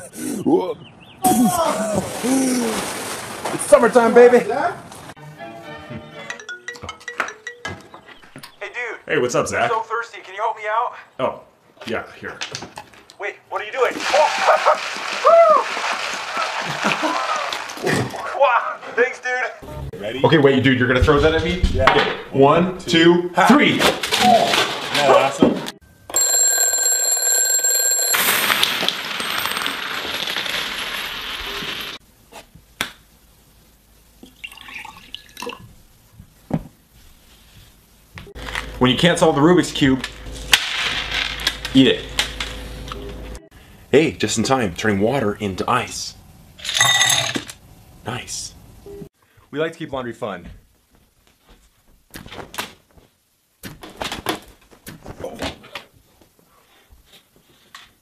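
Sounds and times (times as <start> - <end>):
alarm clock bell ringing: 6.4 - 7.8, 26.1 - 28.7.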